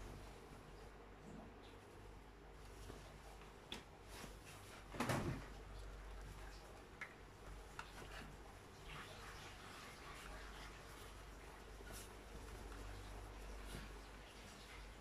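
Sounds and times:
low steady hum: 0:00.0 - 0:15.0
coat cloth rustling: 0:07.6 - 0:14.3.

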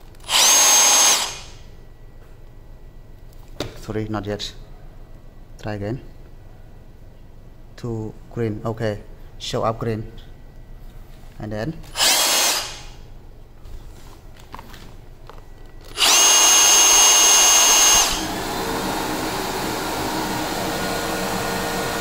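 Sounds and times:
rotary hammer whining: 0:00.0 - 0:01.7, 0:11.9 - 0:13.0, 0:15.8 - 0:22.0
vacuum humming: 0:00.2 - 0:01.6, 0:12.0 - 0:13.0, 0:14.4 - 0:22.0.

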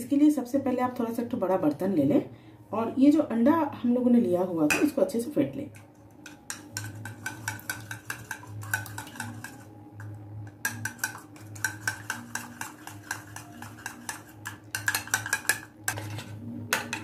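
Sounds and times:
spoon clinking against ceramic bowl: 0:06.2 - 0:16.0.

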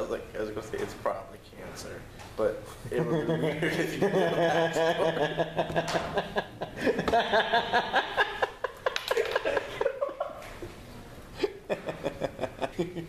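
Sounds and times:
men laughing: 0:02.9 - 0:10.8, 0:11.4 - 0:13.0.

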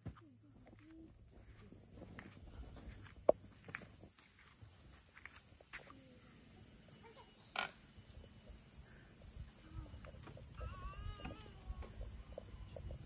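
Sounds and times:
insects droning high-pitched: 0:00.0 - 0:13.0.

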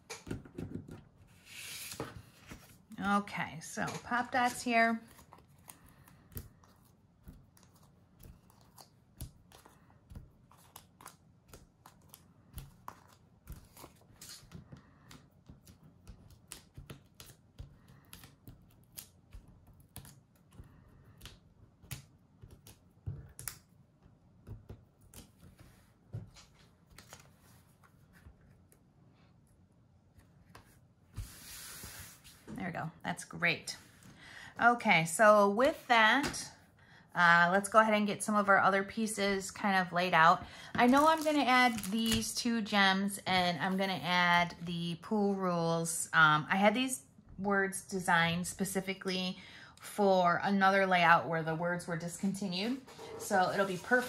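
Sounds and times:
paper rustling: 0:40.8 - 0:42.3, 0:52.7 - 0:54.0.

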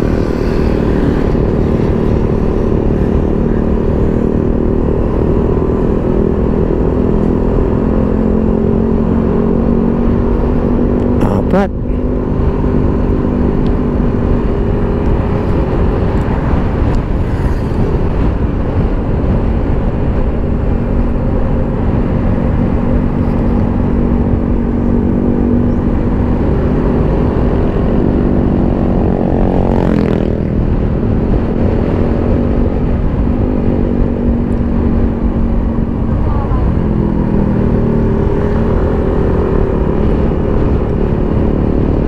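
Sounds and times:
motorcycle engine running: 0:00.0 - 0:42.0
road and wind rumble: 0:00.0 - 0:42.0.

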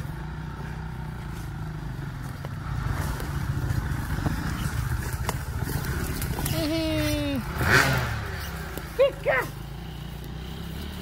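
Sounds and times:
motorcycle engine rumbling: 0:00.0 - 0:11.0.

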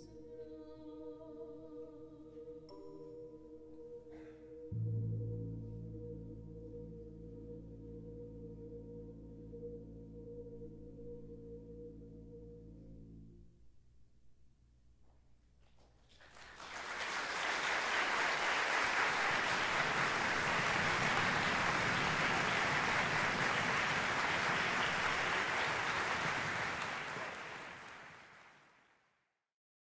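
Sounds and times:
audience applause: 0:16.1 - 0:28.9.

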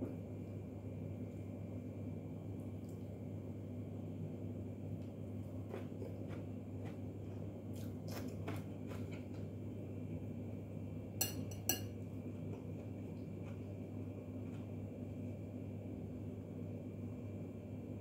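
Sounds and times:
metal spoon knocking ceramic bowl: 0:11.2 - 0:11.9.

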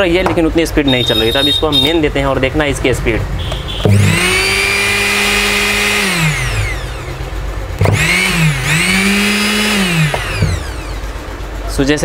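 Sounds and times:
mixer grinder motor whining: 0:03.8 - 0:11.4.

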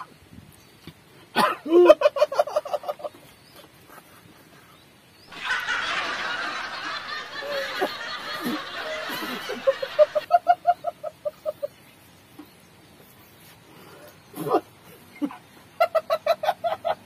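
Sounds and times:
man snickering: 0:07.3 - 0:10.2.

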